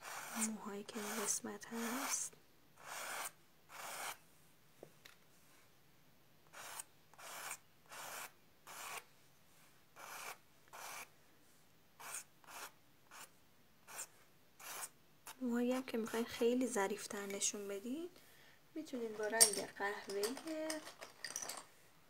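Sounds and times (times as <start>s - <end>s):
pencil scratching on paper: 0.0s - 4.2s, 6.5s - 9.1s, 10.0s - 11.1s, 12.0s - 15.4s.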